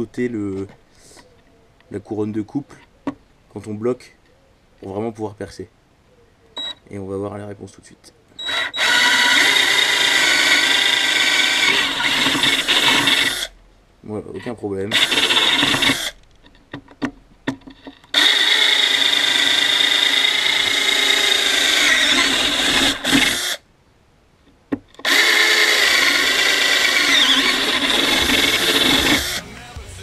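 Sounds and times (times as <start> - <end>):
cordless drill whine: 8.4 - 13.5, 14.9 - 16.2, 18.1 - 23.6, 25.0 - 29.6
drill clicks: 8.4 - 13.5, 14.9 - 17.1, 17.8 - 23.6, 25.0 - 29.4.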